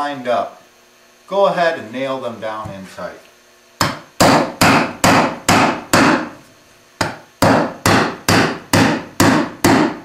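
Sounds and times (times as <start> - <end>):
hammer striking nails: 3.8 - 6.3, 7.0 - 10.0.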